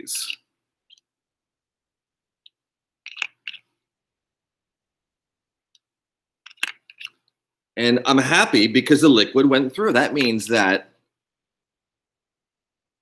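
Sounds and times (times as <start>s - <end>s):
plastic tubes clicking: 2.4s - 3.7s, 5.7s - 7.4s.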